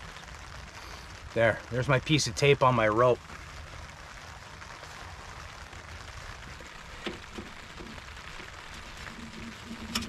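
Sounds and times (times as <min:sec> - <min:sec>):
rain on a tarp: 0:00.0 - 0:10.0.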